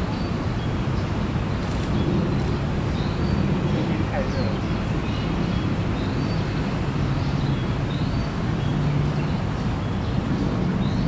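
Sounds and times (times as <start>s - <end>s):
birds chirping: 0.0s - 11.0s
city traffic rumble: 0.0s - 11.0s.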